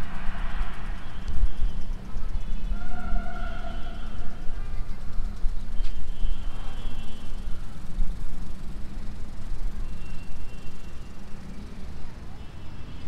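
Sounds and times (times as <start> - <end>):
low outdoor rumble: 0.0 - 13.0
faint high chirps: 8.8 - 13.0.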